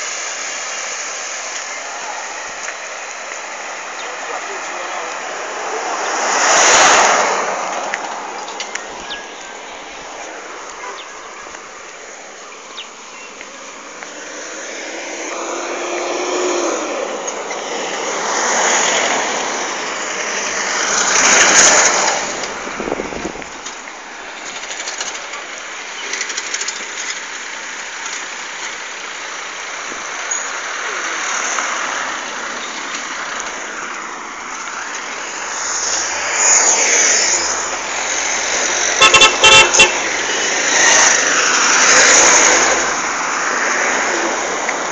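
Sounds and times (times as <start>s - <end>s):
road and traffic noise: 0.0s - 44.9s
vehicle horn toots: 39.0s - 41.1s.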